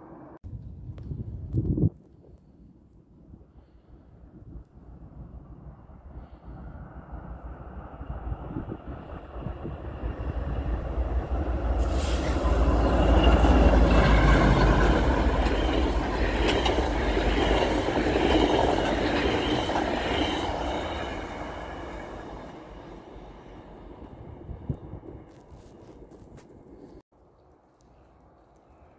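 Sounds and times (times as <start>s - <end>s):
train passing rumble: 4.8s - 27.0s.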